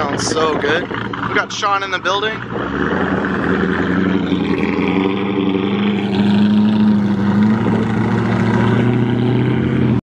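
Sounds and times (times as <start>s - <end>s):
sports car exhaust droning: 2.4s - 10.0s.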